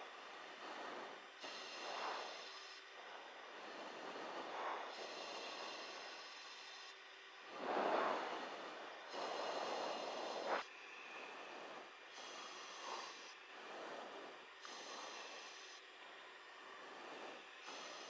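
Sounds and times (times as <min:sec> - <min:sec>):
faint hiss: 0:00.0 - 0:18.0
breathing into headset microphone: 0:00.5 - 0:07.0, 0:07.6 - 0:15.8.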